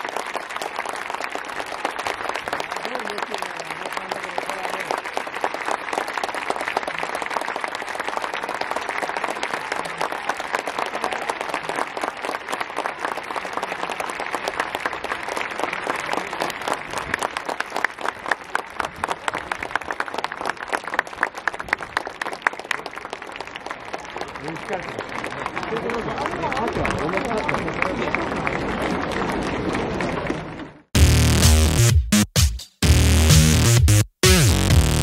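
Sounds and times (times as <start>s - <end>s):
crowd applauding: 0.0s - 31.6s.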